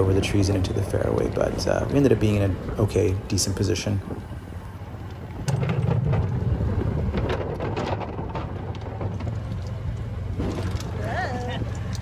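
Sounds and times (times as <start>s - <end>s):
golf cart rumble: 0.0s - 12.0s
cart body rattles and knocks: 5.0s - 12.0s.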